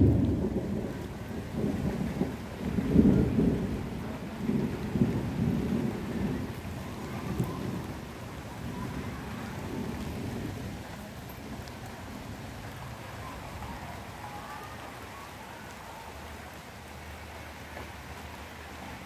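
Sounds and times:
thunder rumbling: 0.0 - 14.1
steady rain: 0.0 - 19.0.

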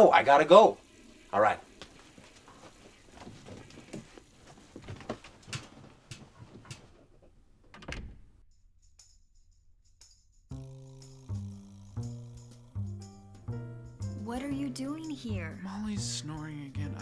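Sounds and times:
clicks knocks and rustling: 3.3 - 8.2.

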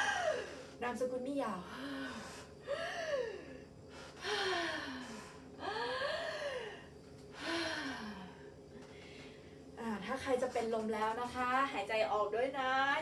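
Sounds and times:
woman gasping: 1.7 - 8.4.

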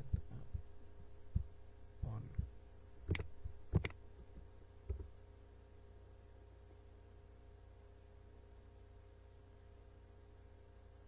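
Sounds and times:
steady low hum: 0.0 - 11.0
mouse and keyboard clicks: 3.1 - 4.0.

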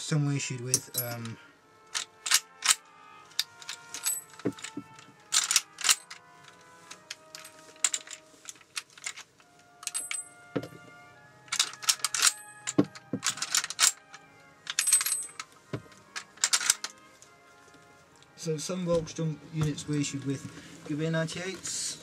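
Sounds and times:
metallic clicks of rifle cartridges: 0.6 - 10.4, 11.5 - 18.4.

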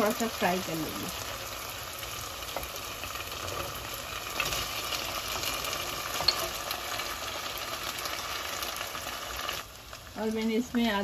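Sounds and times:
meat sizzling in hot oil: 0.0 - 11.0.

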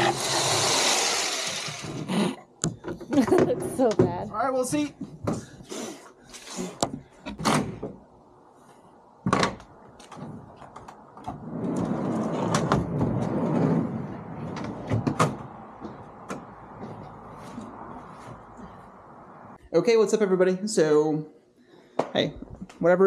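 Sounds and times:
wooden platform sliding scrape: 5.7 - 6.9, 11.2 - 15.0.

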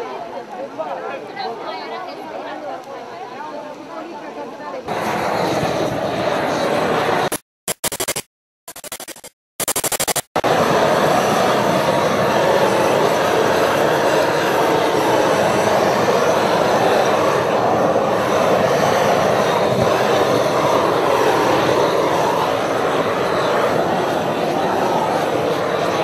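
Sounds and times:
gas torch roaring: 4.9 - 7.4, 10.4 - 26.0.

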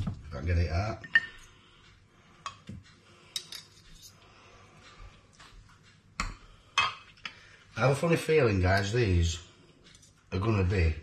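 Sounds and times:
utensil clinking against a dish: 1.0 - 1.6.

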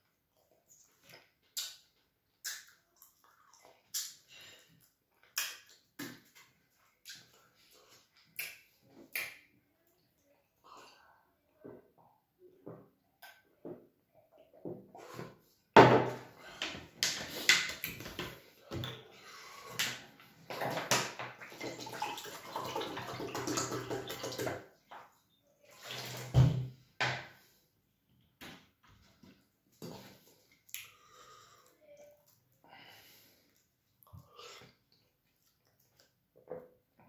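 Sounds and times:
gulping water: 20.4 - 24.8.

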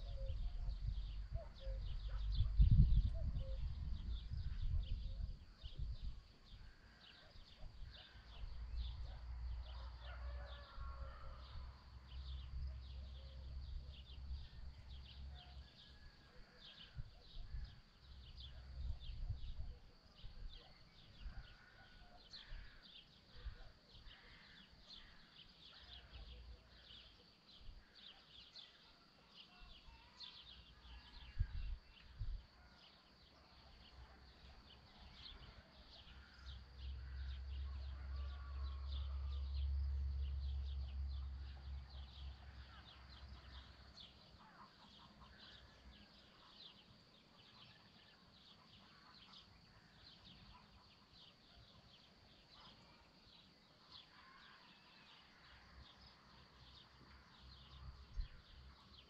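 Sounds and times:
wind rumble on microphone: 0.0 - 6.8, 16.9 - 21.5, 30.9 - 32.6.

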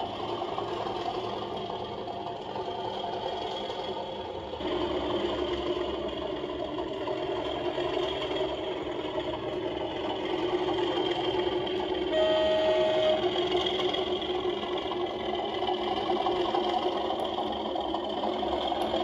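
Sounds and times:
model diesel engine sound: 0.0 - 19.0
train horn blast: 12.1 - 13.4.

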